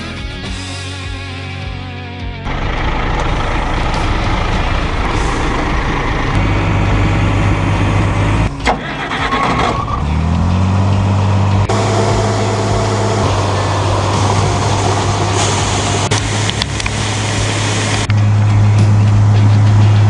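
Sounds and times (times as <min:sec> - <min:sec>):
truck engine starting and running: 0:00.0 - 0:20.0
tractor engine running: 0:02.4 - 0:20.0.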